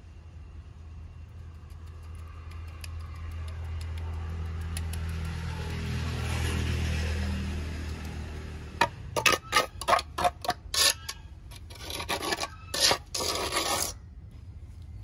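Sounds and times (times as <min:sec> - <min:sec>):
trowel scraping wet mortar: 0:08.8 - 0:14.0.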